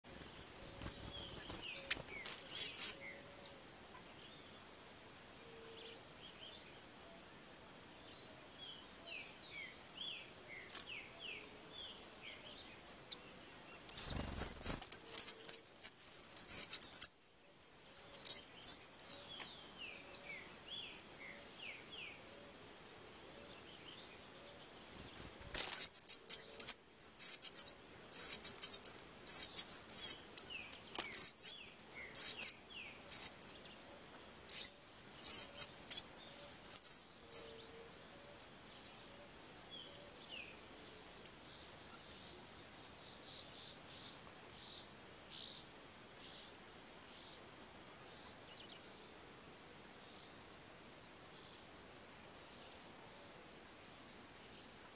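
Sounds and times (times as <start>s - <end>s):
nestlings begging chirps: 0.1s - 3.0s, 13.7s - 17.1s, 18.2s - 19.2s, 24.8s - 33.6s, 34.5s - 36.0s, 36.6s - 37.5s
faint bird song whistles: 0.1s - 3.6s, 8.0s - 17.4s, 18.0s - 22.5s, 23.3s - 33.8s, 34.4s - 47.4s.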